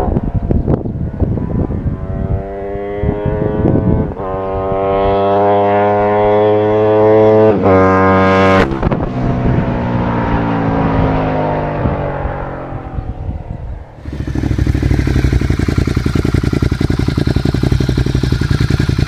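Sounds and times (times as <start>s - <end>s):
motorcycle accelerating hard: 0.0s - 19.0s.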